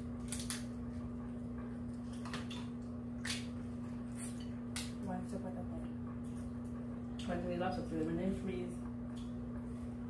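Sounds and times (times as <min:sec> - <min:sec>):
steady hum: 0:00.0 - 0:10.0.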